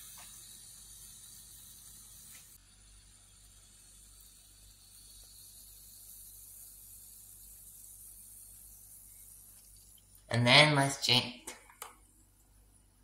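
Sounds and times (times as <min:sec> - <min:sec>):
carbonation bubbles fizzing: 0:00.0 - 0:10.3.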